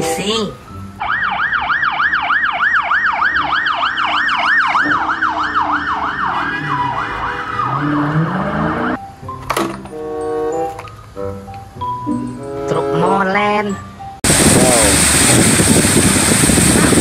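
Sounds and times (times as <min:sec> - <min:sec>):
police siren yelping: 0:01.0 - 0:09.0
passing vehicle engine: 0:01.4 - 0:09.0.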